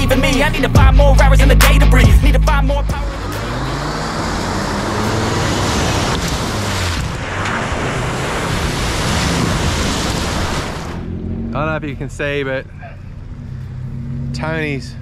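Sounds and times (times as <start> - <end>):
vehicle engine working: 0.0 - 15.0
wind and tyre rush: 3.2 - 14.9.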